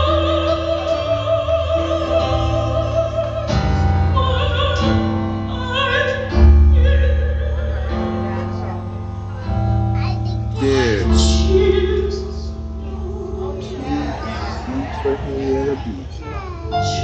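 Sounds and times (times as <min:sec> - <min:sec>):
soprano singing with vibrato: 0:00.0 - 0:08.4, 0:10.6 - 0:14.8
sustained accompaniment chords: 0:00.0 - 0:17.0.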